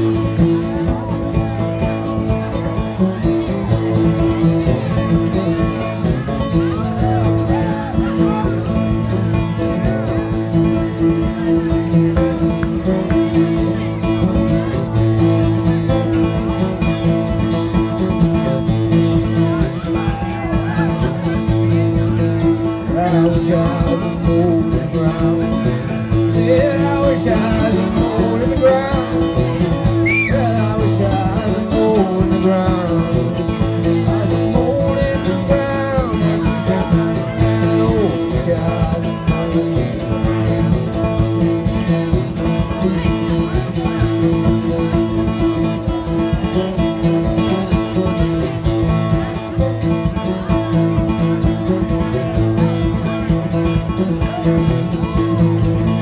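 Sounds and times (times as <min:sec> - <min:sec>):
acoustic guitar strumming: 0:00.0 - 0:56.0
banjo picking: 0:00.0 - 0:56.0
man singing: 0:22.6 - 0:41.0.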